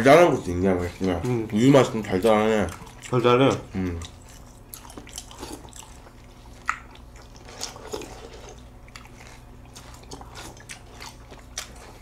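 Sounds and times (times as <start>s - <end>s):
milk slurping from bowl: 7.3s - 8.7s.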